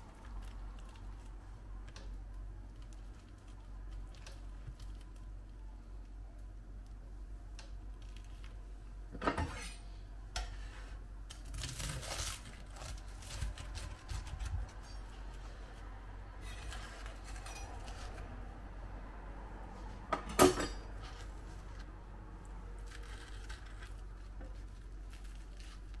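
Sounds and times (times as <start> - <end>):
faint low hum: 0.0 - 26.0
utensils and dishes clinking: 16.4 - 18.2, 20.2 - 20.9.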